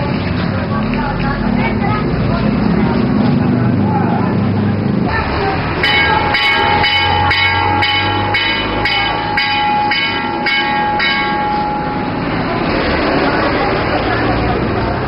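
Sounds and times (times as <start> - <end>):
steady background noise: 0.0 - 15.0
bell-like ringing strikes: 5.8 - 12.6.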